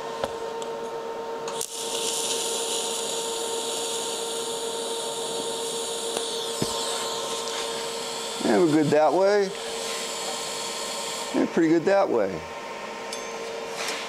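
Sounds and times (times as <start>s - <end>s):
welding arc hissing: 1.5s - 12.4s.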